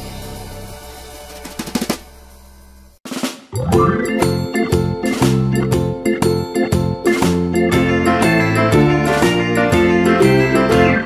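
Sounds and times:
instrumental music with plucked notes: 0:03.6 - 0:11.0.

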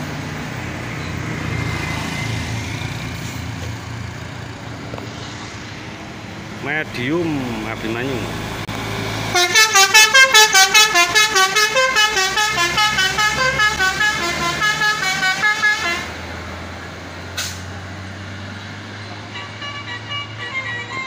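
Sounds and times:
bus engine humming: 0:00.0 - 0:21.0
bus horn playing fast melody: 0:09.3 - 0:16.2, 0:19.3 - 0:21.0.

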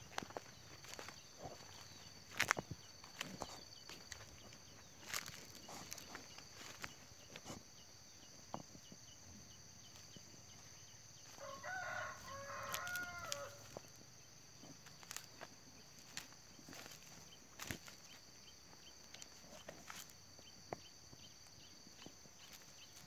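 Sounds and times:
footsteps crunching on dry stalks: 0:00.0 - 0:09.0, 0:09.9 - 0:23.0
rooster crowing: 0:11.2 - 0:13.8.

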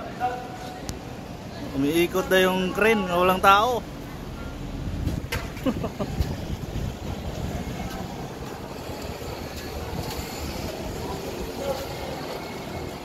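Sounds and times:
road traffic: 0:00.0 - 0:13.0
faint distant voices: 0:05.8 - 0:13.0.

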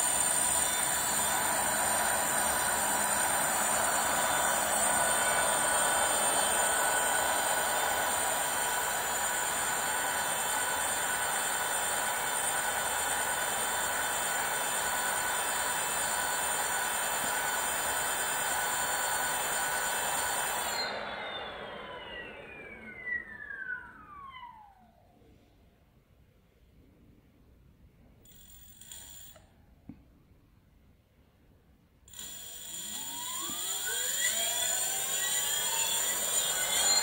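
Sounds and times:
electric motor whine: 0:00.0 - 0:11.4, 0:18.8 - 0:24.8, 0:32.5 - 0:37.0.

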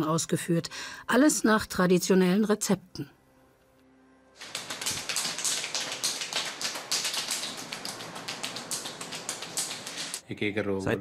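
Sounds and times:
hands smacking oiled skin: 0:04.4 - 0:10.2.

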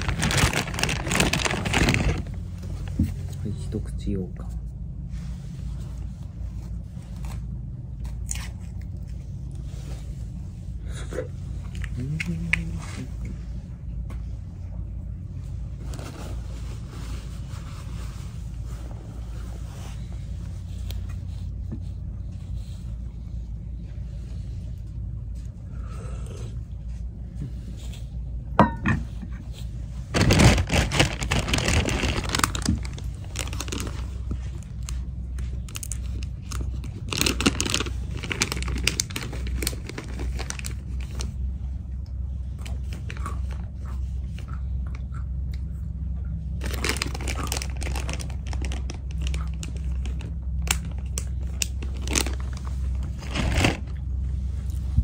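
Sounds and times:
wrapper crinkling: 0:00.0 - 0:03.0, 0:30.0 - 0:35.0, 0:35.6 - 0:41.4, 0:46.5 - 0:54.0
low hum: 0:00.0 - 0:55.0
person crunching snack: 0:46.6 - 0:54.0.

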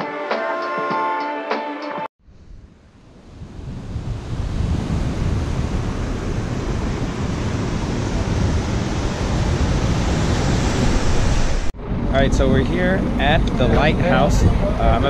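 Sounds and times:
wind rumbling on microphone: 0:02.2 - 0:15.0
surf washing over rocky shore: 0:03.1 - 0:11.7.

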